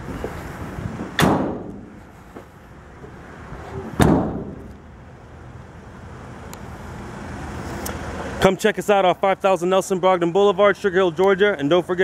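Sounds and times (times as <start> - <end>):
van doors slamming: 1.0 - 2.0, 3.9 - 4.7.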